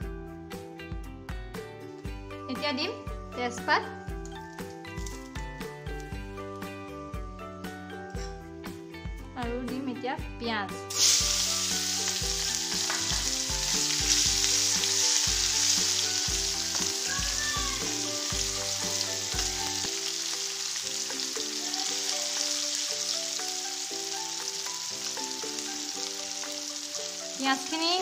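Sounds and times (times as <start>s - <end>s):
background music: 0.0s - 28.0s
onions sizzling in hot oil: 10.9s - 28.0s.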